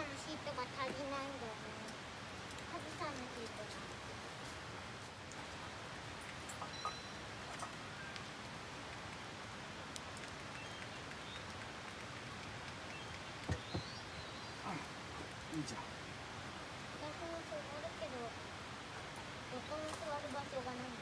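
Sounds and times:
rain hissing: 0:00.0 - 0:21.0
drip ticks: 0:06.2 - 0:14.0
short knocks: 0:13.4 - 0:14.0.

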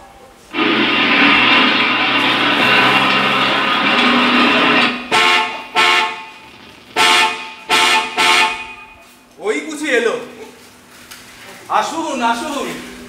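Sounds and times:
vehicle horn honking: 0:04.4 - 0:09.2.

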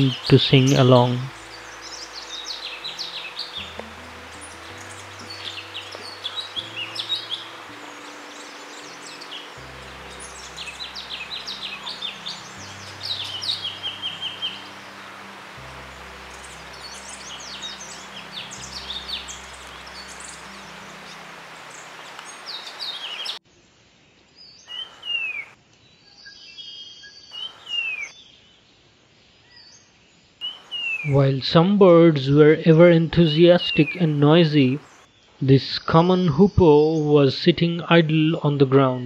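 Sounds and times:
background music with low notes: 0:00.0 - 0:22.8
birds chirping and twittering: 0:00.0 - 0:23.5, 0:24.1 - 0:31.8, 0:32.6 - 0:35.4.

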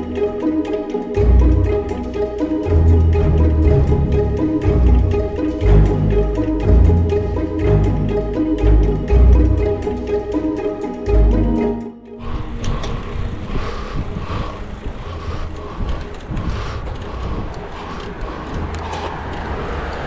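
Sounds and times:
plucked string music: 0:00.0 - 0:12.9
bicycle road rumble: 0:00.0 - 0:20.0
wind buffeting microphone: 0:12.2 - 0:20.0.

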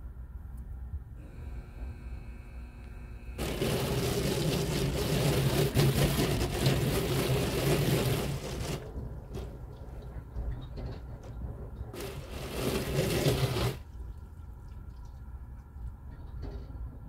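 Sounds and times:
deep machine hum: 0:01.2 - 0:08.2
water spray drumming on car: 0:03.4 - 0:09.5, 0:12.0 - 0:13.9.

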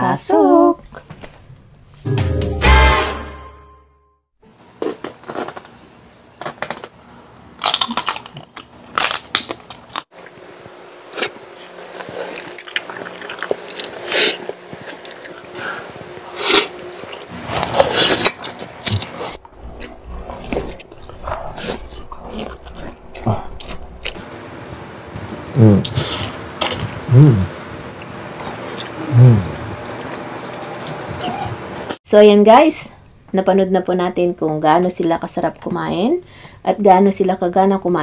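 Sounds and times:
crunching and chewing food: 0:06.4 - 0:24.3, 0:27.9 - 0:32.0.

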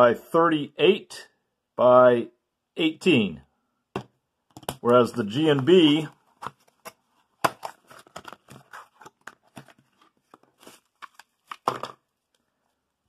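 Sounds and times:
hands rustling and clicking battery: 0:04.5 - 0:12.5.

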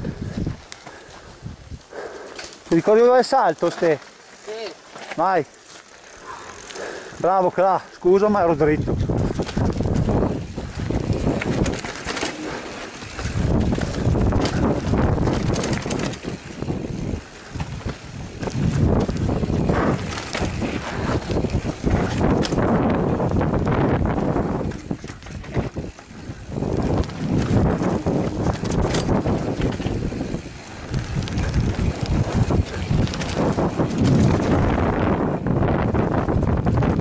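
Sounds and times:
wind rushing over microphone: 0:00.0 - 0:02.0, 0:08.0 - 0:37.0
tyres on loose dirt: 0:00.0 - 0:37.0
bike clattering over bumps: 0:08.8 - 0:37.0.

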